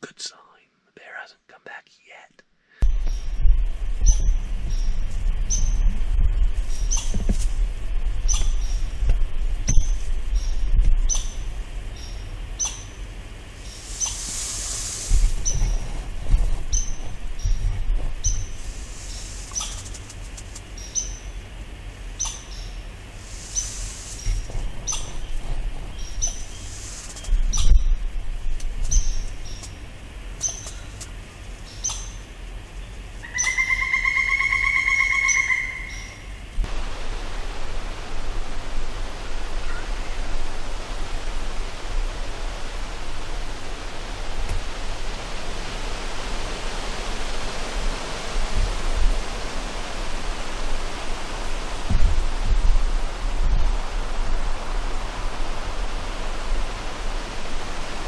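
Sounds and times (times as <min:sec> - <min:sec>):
steady hiss: 0:00.0 - 0:58.0
steady low rumble: 0:02.8 - 0:58.0
squirrel chirping: 0:04.0 - 0:05.9, 0:06.6 - 0:07.2, 0:08.2 - 0:08.9, 0:09.7 - 0:13.0, 0:16.7 - 0:19.9, 0:20.7 - 0:21.4, 0:22.2 - 0:22.8, 0:23.4 - 0:27.9, 0:28.9 - 0:29.8, 0:30.4 - 0:30.9, 0:31.6 - 0:32.3, 0:33.2 - 0:36.3
bird chirps and trill: 0:09.8 - 0:13.0, 0:20.8 - 0:21.4, 0:22.2 - 0:22.8, 0:31.7 - 0:32.3, 0:33.2 - 0:36.3.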